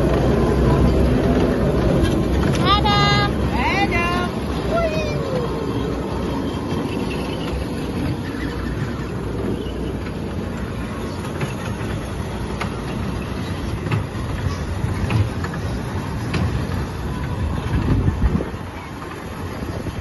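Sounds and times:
kiddie train cars rumbling: 0:00.0 - 0:20.0.

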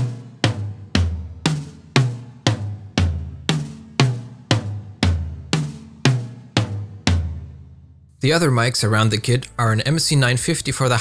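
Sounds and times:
tom drums struck: 0:00.0 - 0:07.8.

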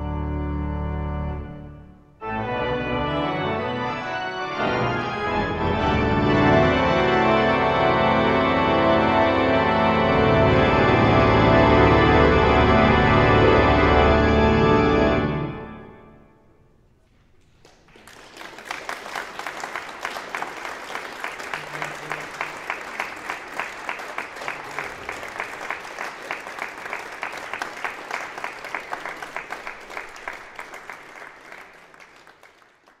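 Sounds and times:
pipe organ chord: 0:00.0 - 0:16.6
audience applauding: 0:17.3 - 0:33.0.

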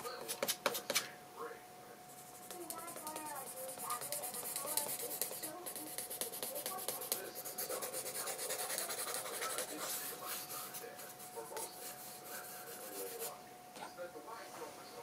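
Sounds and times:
pen scratching on paper: 0:02.1 - 0:13.4.

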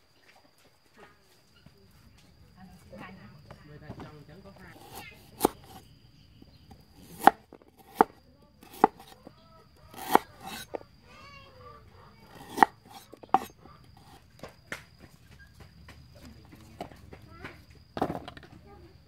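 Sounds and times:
knife chopping on wooden board: 0:04.7 - 0:05.8, 0:06.7 - 0:09.2, 0:09.9 - 0:10.8, 0:12.3 - 0:14.2.

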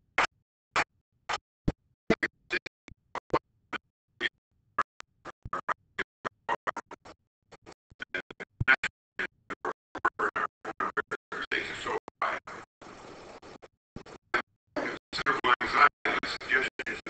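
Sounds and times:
man's voice at a microphone: 0:15.2 - 0:17.0.

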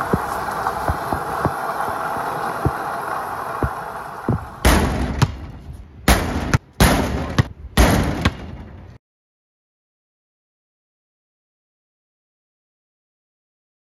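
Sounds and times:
water spray rushing: 0:00.0 - 0:04.7.

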